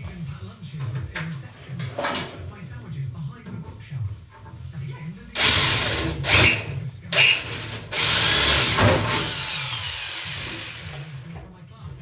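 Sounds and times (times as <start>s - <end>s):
power drill boring into metal: 5.4s - 11.0s.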